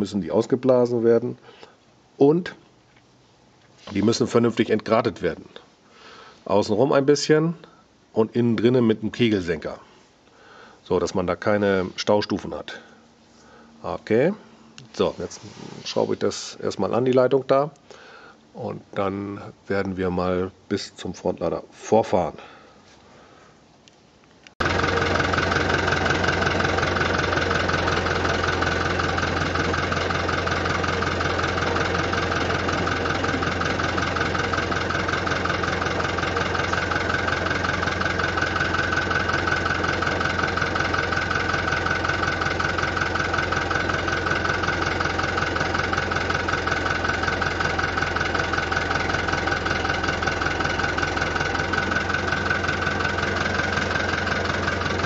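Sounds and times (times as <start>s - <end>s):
tractor diesel engine idling: 24.6s - 55.0s.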